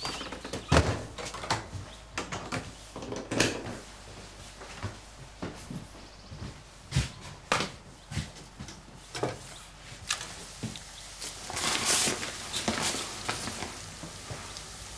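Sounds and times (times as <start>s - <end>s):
paper crinkling: 11.2s - 13.8s.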